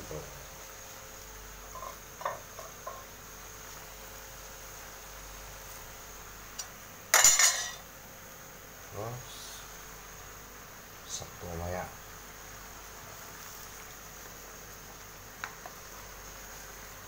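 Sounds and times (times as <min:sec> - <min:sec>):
metal ladle clattering in pan: 0:07.2 - 0:07.8.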